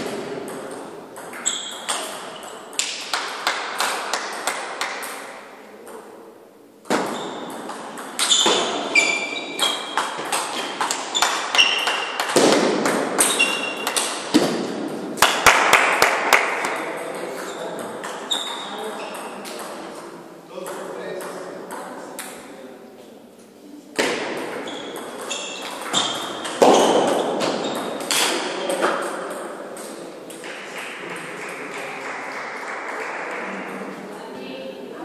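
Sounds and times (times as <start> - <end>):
table tennis balls clicking: 0.4 - 5.3.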